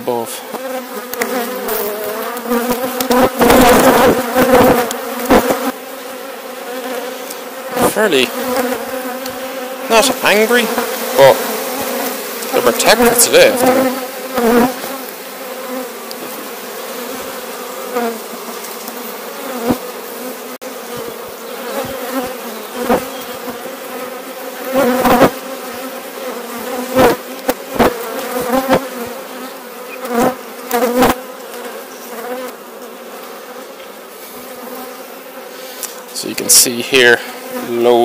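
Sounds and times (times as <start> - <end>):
honeybees buzzing: 0.0 - 38.0
knocks of wooden hive frames: 0.6 - 5.7.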